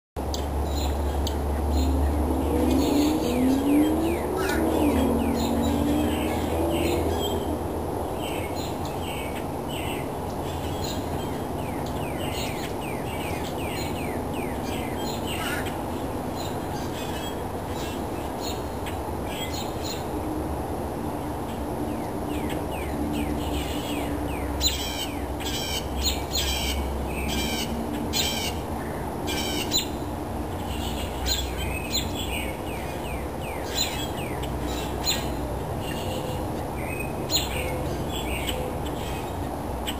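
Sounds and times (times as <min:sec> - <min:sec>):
steady low rumble: 0:00.2 - 0:16.4
songbirds chirping: 0:00.2 - 0:39.9.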